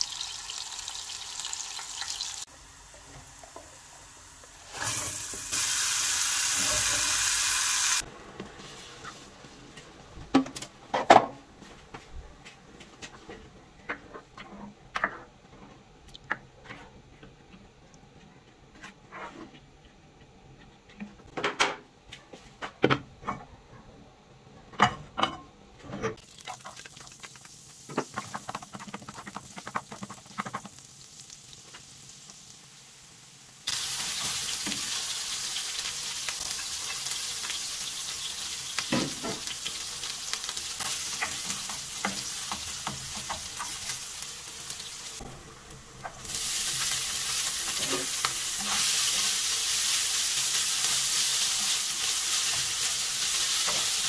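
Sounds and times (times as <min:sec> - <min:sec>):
food sizzling in a frying pan: 0:00.0 - 0:09.3, 0:26.2 - 0:54.0.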